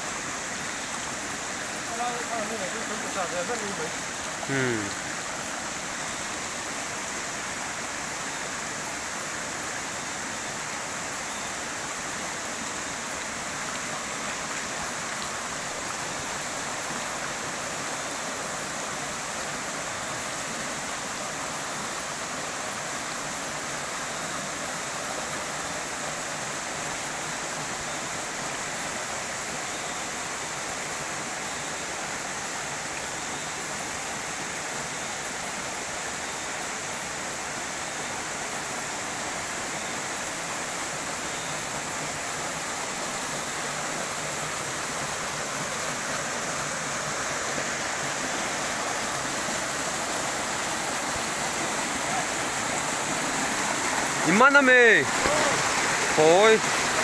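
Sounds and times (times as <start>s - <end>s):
stream flowing over rocks: 0.0s - 57.0s.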